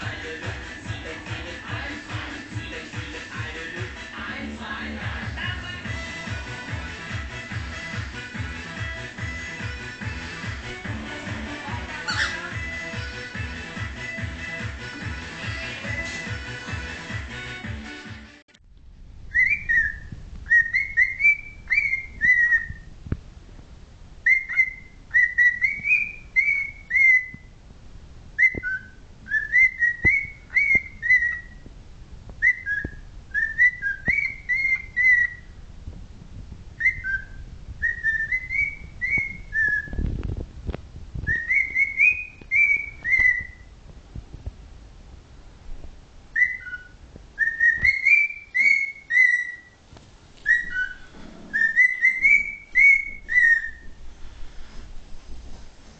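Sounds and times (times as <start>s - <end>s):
cockatiel whistling: 12.0s - 12.6s, 19.3s - 22.9s, 24.2s - 27.5s, 28.4s - 31.6s, 32.4s - 35.6s, 36.8s - 40.1s, 41.2s - 43.7s, 46.3s - 49.8s, 50.4s - 54.0s.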